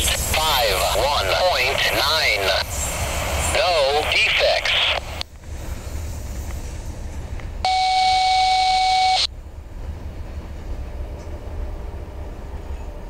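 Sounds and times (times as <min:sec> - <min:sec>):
electronic beep with radio static: 0:07.7 - 0:09.3.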